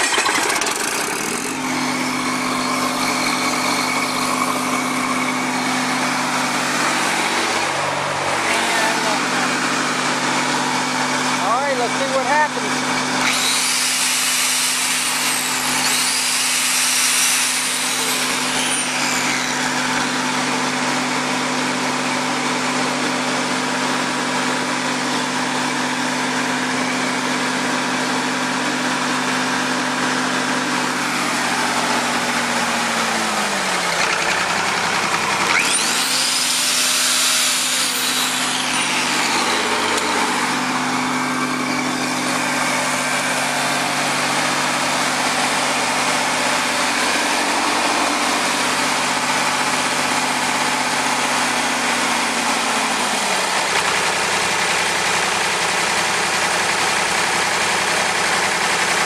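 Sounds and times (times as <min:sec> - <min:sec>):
diesel engine running: 0:00.0 - 0:16.2, 0:17.4 - 0:59.0
angle grinder whine: 0:00.0 - 0:59.0.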